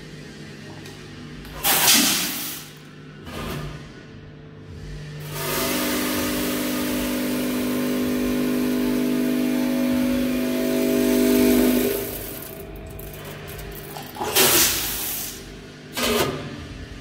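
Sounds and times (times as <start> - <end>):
feeder motor humming: 5.0 - 14.8
coffee beans pouring: 10.5 - 14.9.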